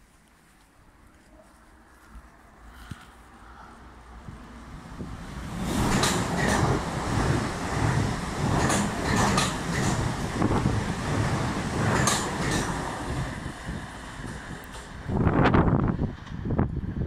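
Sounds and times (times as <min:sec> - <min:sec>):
train wheels rumbling on rail: 0:03.5 - 0:17.0.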